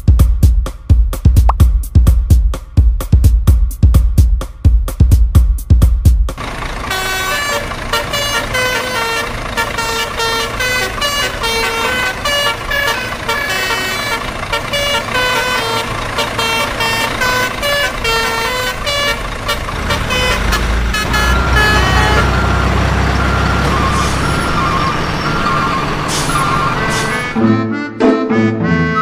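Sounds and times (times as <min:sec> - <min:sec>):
low engine rumble: 0:06.3 - 0:27.4
musical truck horn tune: 0:06.4 - 0:29.0.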